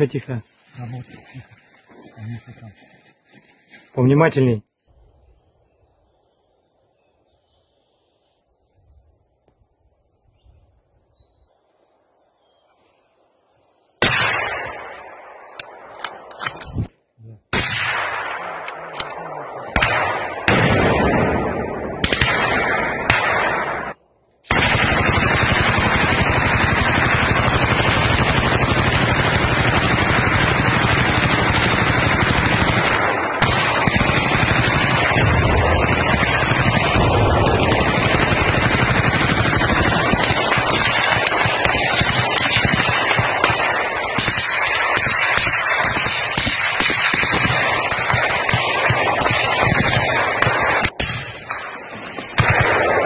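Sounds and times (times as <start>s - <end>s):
gunshots with echoing tails: 14.0s - 16.6s, 17.5s - 51.8s, 52.4s - 53.0s.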